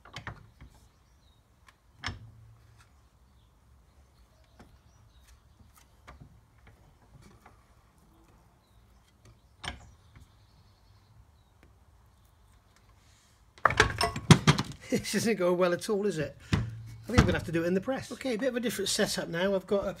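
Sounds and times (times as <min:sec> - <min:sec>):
metal parts clicking and knocking: 0:13.6 - 0:14.8.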